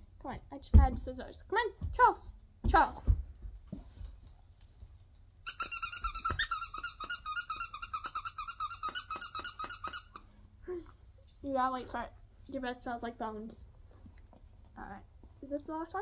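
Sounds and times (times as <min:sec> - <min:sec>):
dog toy squeaking: 0:05.4 - 0:10.3.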